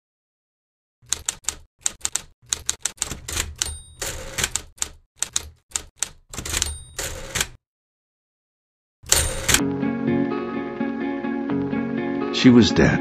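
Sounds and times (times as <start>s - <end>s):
typewriter key strikes: 1.0s - 7.6s, 9.1s - 9.6s
typewriter carriage return slide: 1.1s - 7.6s, 9.1s - 9.6s
typewriter bell ring: 3.0s - 4.6s, 6.3s - 7.6s, 9.1s - 9.6s.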